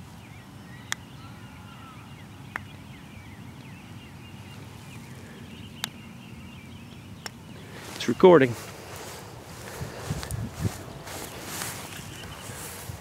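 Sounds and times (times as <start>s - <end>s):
faint birds chirping: 0.0s - 13.0s
sharp clicks: 7.2s - 7.4s.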